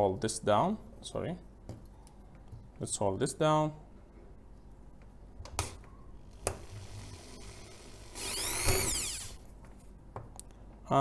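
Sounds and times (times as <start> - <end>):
power drill boring into wood: 6.4 - 9.4.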